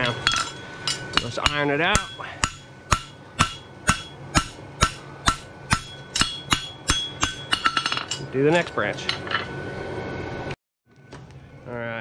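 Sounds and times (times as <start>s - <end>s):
hammer striking horseshoe on anvil: 0.0s - 8.3s.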